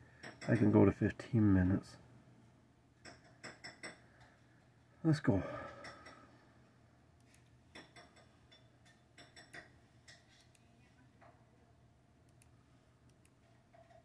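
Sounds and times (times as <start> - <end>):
faint low hum: 0.0 - 14.0
computer mouse clicks: 13.1 - 13.4.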